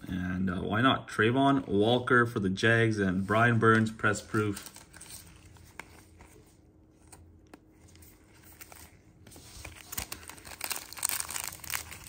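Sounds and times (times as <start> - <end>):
wrappers crinkling and tearing: 4.1 - 5.7, 8.0 - 12.0.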